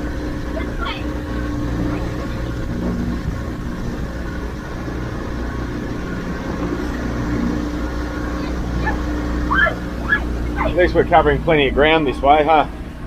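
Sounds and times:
outboard motor running: 0.0s - 13.0s.

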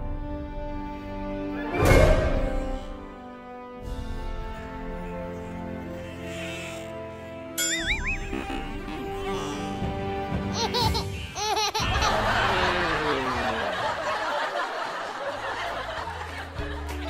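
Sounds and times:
background music: 0.0s - 17.0s
wobbling cartoon tones: 7.6s - 8.8s
laughter: 10.6s - 17.0s.

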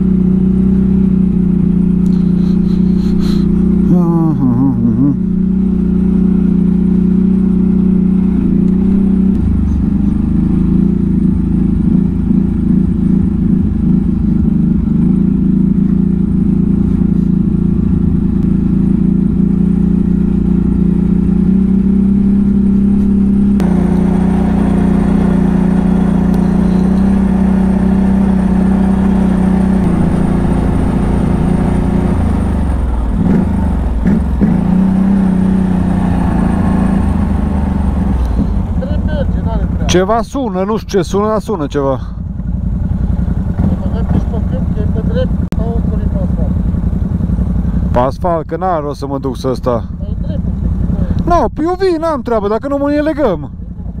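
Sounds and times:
atv engine running: 0.0s - 54.0s.

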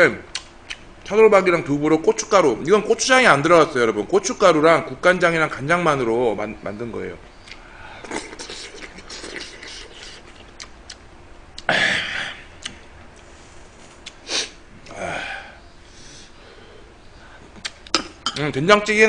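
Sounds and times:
man chewing food: 0.3s - 0.9s, 7.4s - 11.7s, 12.3s - 14.9s
noisy sniffs through the nose: 7.8s - 10.5s, 13.2s - 14.6s, 15.8s - 17.6s.

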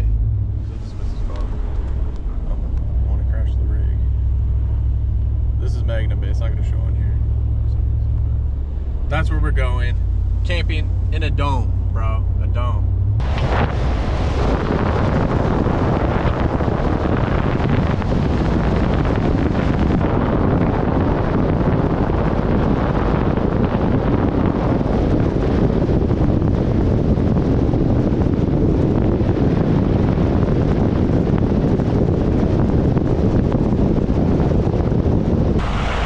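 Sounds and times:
truck tyre road noise: 0.0s - 36.0s
wind on microphone: 11.7s - 36.0s.

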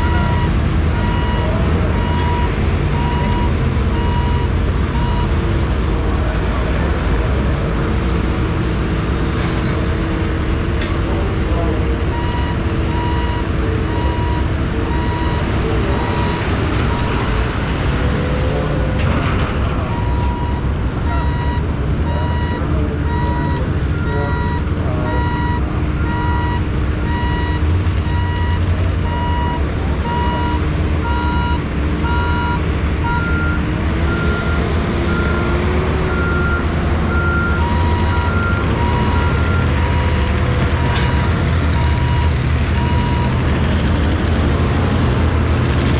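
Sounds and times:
higher-pitched reversing alarm: 0.0s - 5.3s, 20.0s - 33.6s
reversing alarm beeping: 0.0s - 5.3s, 12.1s - 17.3s, 19.9s - 43.4s
heavy vehicle engines rumbling: 0.0s - 45.9s.

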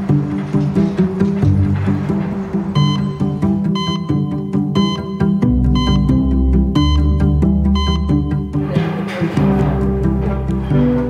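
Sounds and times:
background music with bass line: 0.0s - 11.0s.

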